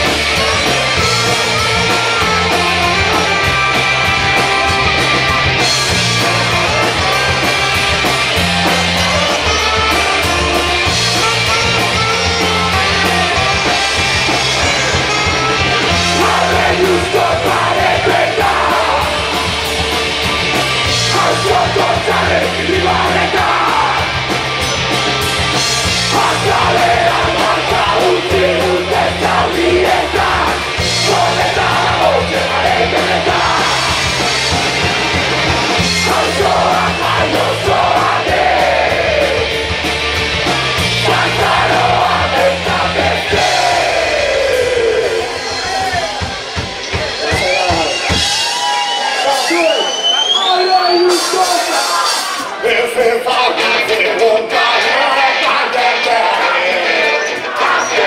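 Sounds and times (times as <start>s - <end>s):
electric guitar: 0.0s - 49.2s
bass line: 0.0s - 49.5s
drums: 0.0s - 58.0s
person singing: 26.0s - 34.2s.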